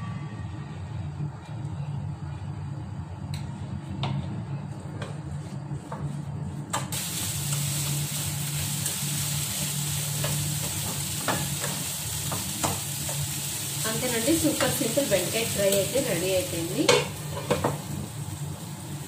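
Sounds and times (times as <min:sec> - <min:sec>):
okra sizzling in pan: 0:06.9 - 0:19.0.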